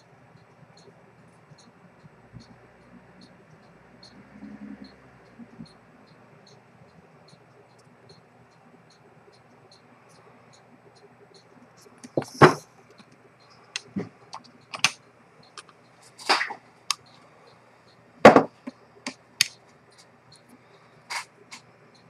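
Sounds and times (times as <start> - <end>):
watch movement clicking and knocking: 12.0 - 17.2.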